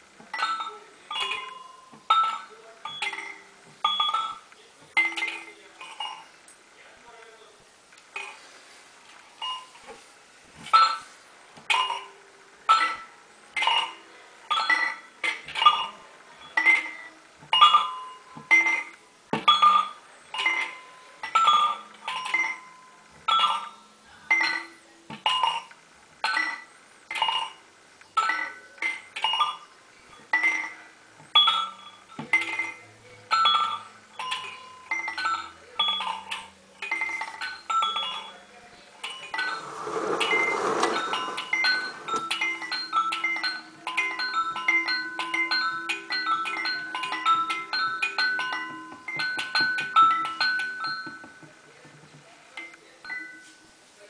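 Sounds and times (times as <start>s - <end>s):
toy chime bell tones: 0.3s - 4.4s, 14.5s - 15.9s, 16.5s - 18.9s, 19.5s - 25.7s, 29.2s - 29.7s, 31.4s - 38.3s, 41.2s - 51.4s.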